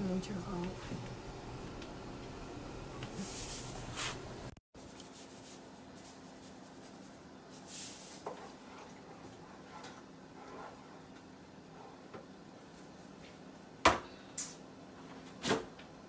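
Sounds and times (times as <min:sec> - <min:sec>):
soft rubbing and handling noise: 0:03.1 - 0:04.2, 0:04.8 - 0:13.6
dry pasta rustling into pot: 0:04.8 - 0:08.7.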